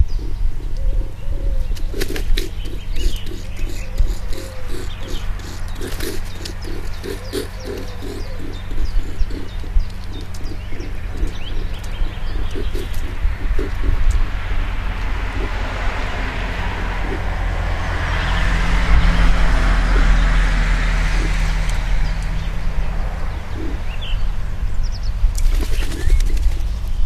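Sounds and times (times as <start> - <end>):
bird chirps: 0.0 - 27.0
car passing: 0.1 - 27.0
rapid clicking rattle: 1.7 - 15.6.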